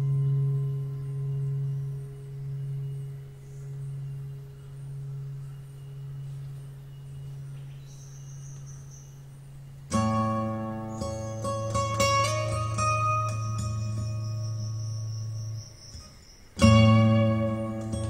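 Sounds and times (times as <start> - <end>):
long low music note: 0.0 - 7.7.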